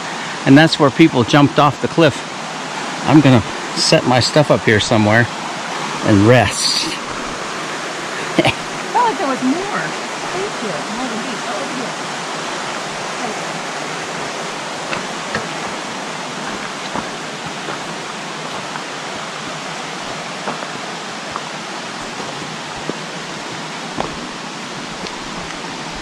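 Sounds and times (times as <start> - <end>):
creek water rushing over rocks: 0.0 - 26.0
footsteps on loose stones: 16.4 - 18.9, 20.1 - 23.0, 24.0 - 24.3.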